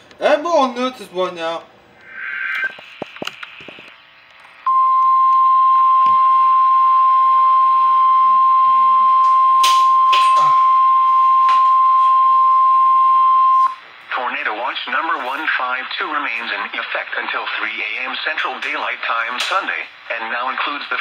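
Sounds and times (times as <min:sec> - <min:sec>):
muffled voices: 0:14.1 - 0:21.0.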